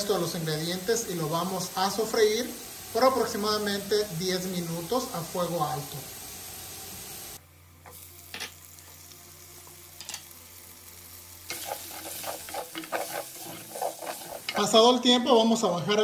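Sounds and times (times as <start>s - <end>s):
vegetables sizzling in hot oil: 0.0s - 16.0s
wooden spoon stirring: 11.5s - 15.0s.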